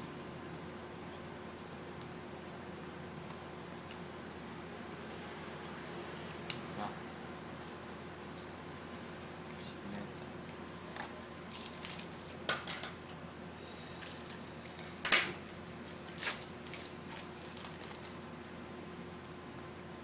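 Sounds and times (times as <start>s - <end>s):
crinkles and snaps of card and foil: 11.0s - 12.5s, 13.7s - 18.2s.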